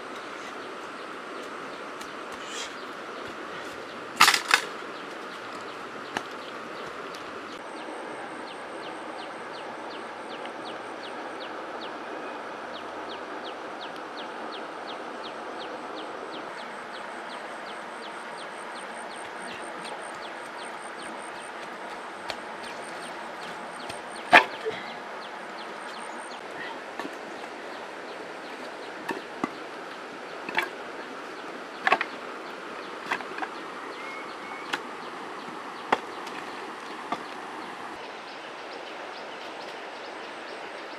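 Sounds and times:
outdoor riverside hiss: 0.0 - 40.9
stones knocking on gravel: 3.2 - 7.1.

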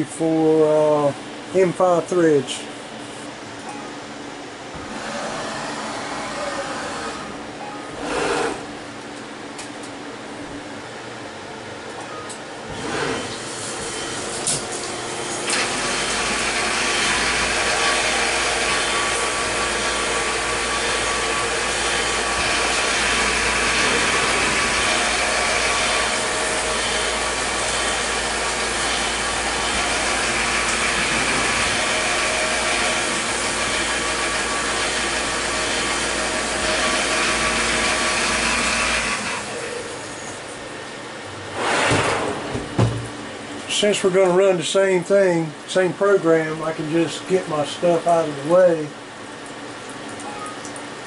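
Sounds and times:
milling machine cutting: 4.8 - 7.4, 12.7 - 40.3.

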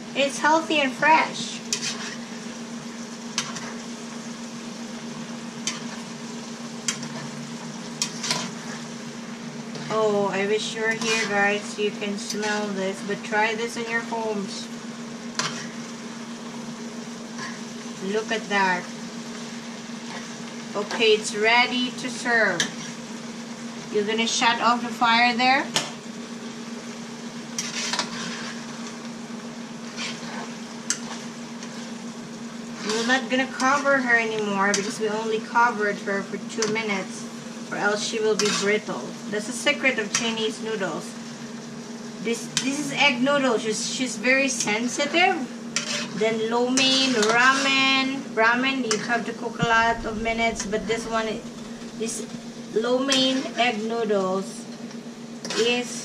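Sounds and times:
steady low hum: 0.0 - 55.3
food sizzling in a frying pan: 0.0 - 56.0
fork scraping a pan: 1.7 - 2.4, 3.4 - 3.8, 5.6 - 6.0, 8.0 - 8.9, 10.9 - 11.6, 15.4 - 15.8, 22.6 - 23.0, 27.6 - 28.7, 29.9 - 31.8, 32.8 - 33.9, 38.4 - 38.8, 45.8 - 47.9
low hum: 49.6 - 52.8.

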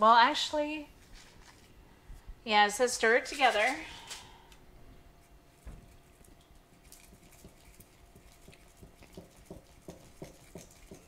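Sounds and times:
stirring stick tapping and scraping: 5.5 - 11.0.

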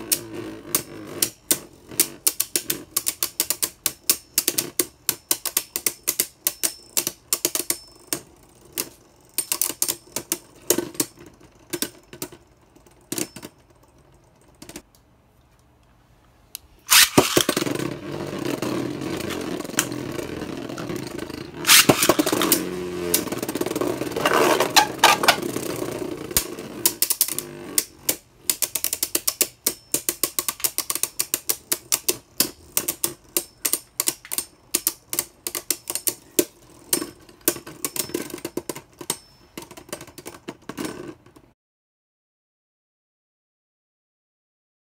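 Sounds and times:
spinning top whirring: 16.9 - 28.0
spinning tops clicking: 16.9 - 37.1.

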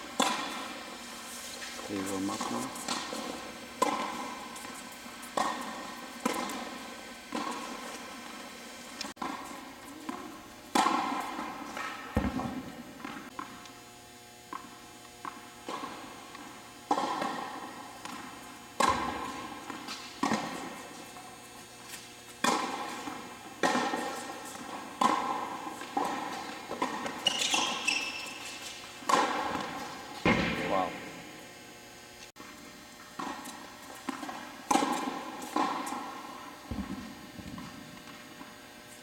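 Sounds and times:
tennis balls bouncing: 0.1 - 1.0, 2.4 - 13.6, 14.5 - 31.4, 32.4 - 38.6
tennis balls struck by rackets: 0.1 - 1.0, 2.0 - 13.6, 14.5 - 31.4, 32.4 - 38.6.

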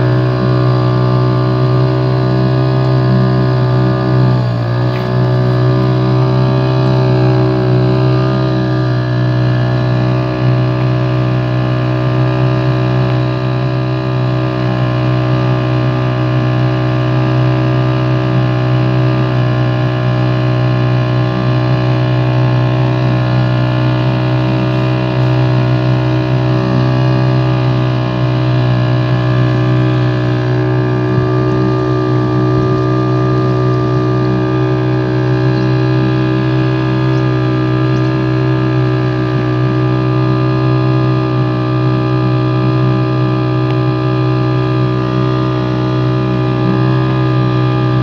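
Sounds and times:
boat motor running: 0.0 - 48.0.

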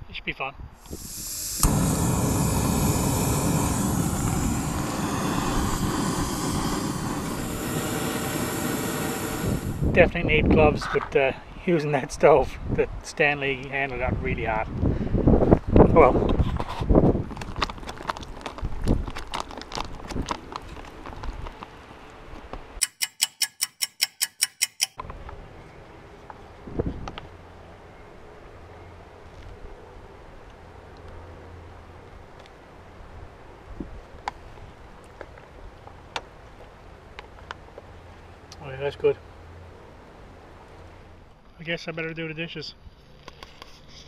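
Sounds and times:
gas stove flame rushing: 0.8 - 10.0
clock ticking: 22.8 - 25.0.

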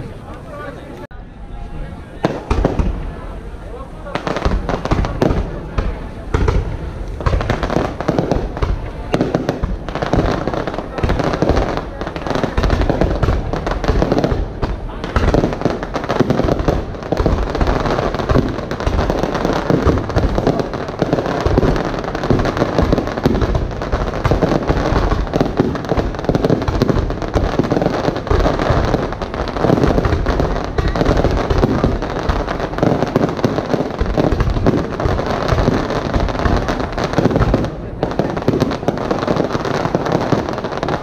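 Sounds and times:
firework shells bursting: 4.2 - 41.0.

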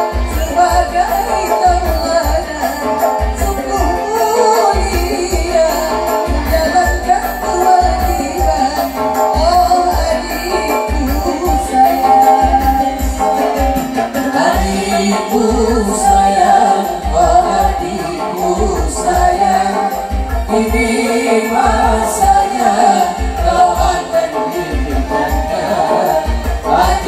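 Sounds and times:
amplified band with low beat: 0.0 - 27.0
men and women singing: 0.0 - 27.0.

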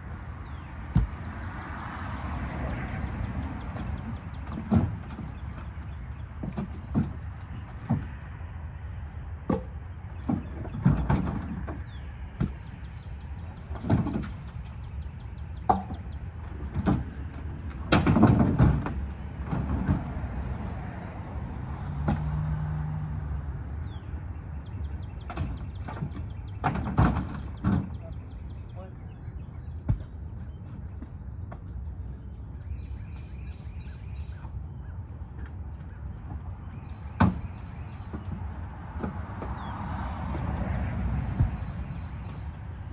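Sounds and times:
logs knocking on metal truck bed: 15.6 - 20.3.

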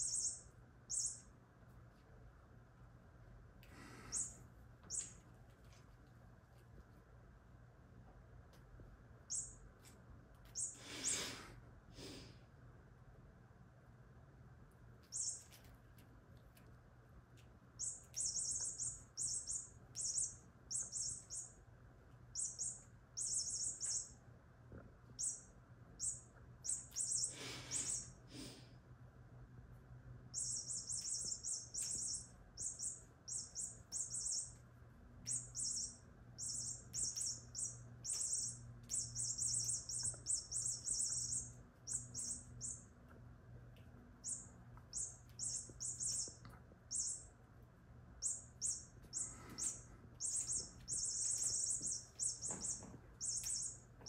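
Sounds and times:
high-pitched chirping: 0.0 - 1.4, 3.8 - 5.3, 9.2 - 9.9, 10.5 - 11.4, 15.0 - 15.7, 17.7 - 24.3, 25.1 - 28.2, 30.3 - 43.2, 44.1 - 47.5, 48.1 - 54.0.

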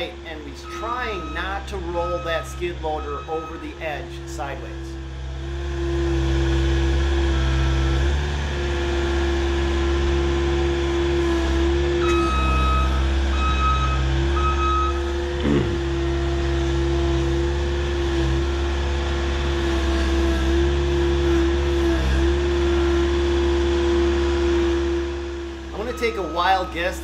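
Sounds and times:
back-up alarm beeping: 0.0 - 4.1, 12.0 - 15.2, 25.8 - 27.0
skid loader engine running: 0.0 - 27.0.

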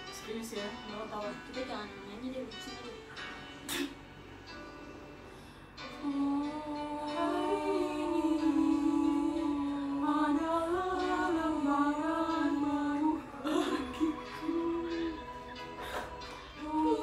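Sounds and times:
girl humming a melody: 6.0 - 16.0.

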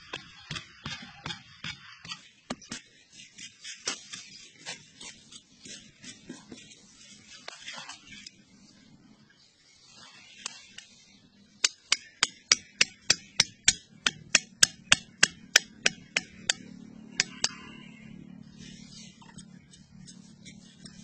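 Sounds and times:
wooden peg hammered into dirt: 11.6 - 17.6.

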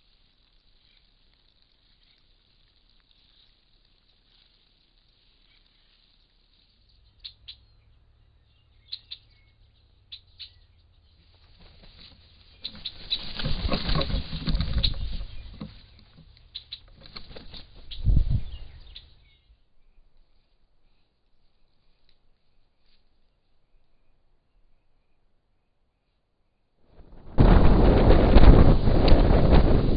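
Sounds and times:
wings flapping: 11.2 - 19.2, 26.9 - 29.9
loud rustling: 11.3 - 18.1.

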